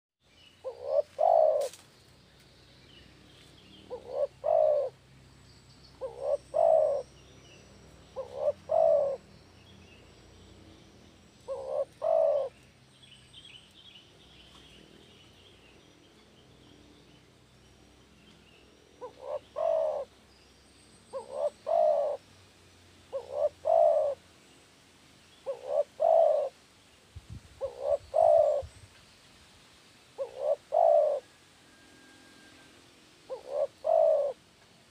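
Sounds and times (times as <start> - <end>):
dove cooing: 0.6 - 1.8, 3.9 - 5.0, 6.0 - 7.1, 8.0 - 9.3, 11.4 - 12.6, 19.0 - 20.1, 21.1 - 22.2, 23.1 - 24.2, 25.4 - 26.6, 27.6 - 28.7, 30.2 - 31.3, 32.0 - 34.4.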